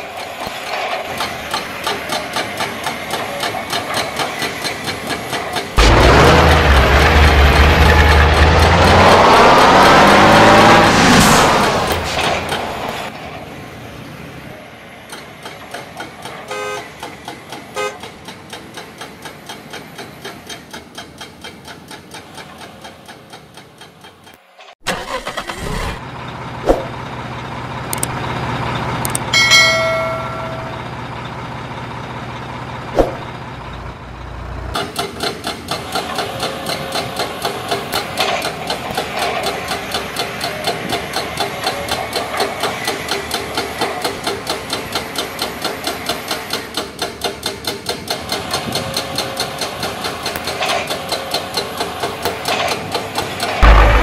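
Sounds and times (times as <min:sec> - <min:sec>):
model excavator engine pulsing: 0:00.0 - 0:11.0, 0:15.0 - 0:54.0
deep engine drone: 0:05.8 - 0:11.7, 0:53.6 - 0:54.0
sharp knocks: 0:53.6 - 0:54.0.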